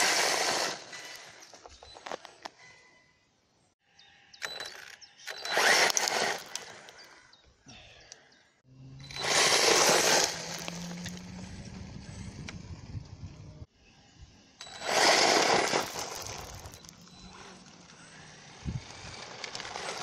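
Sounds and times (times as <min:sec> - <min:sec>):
rc truck motor whine: 0:04.4 - 0:07.3, 0:08.7 - 0:20.0
tyres scrabbling on loose stones: 0:15.0 - 0:17.8.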